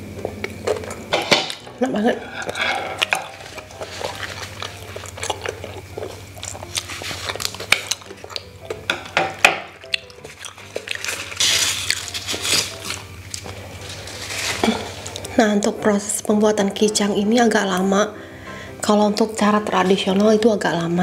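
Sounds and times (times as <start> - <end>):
leaf wrapper rustling: 2.2 - 8.5, 10.1 - 15.4.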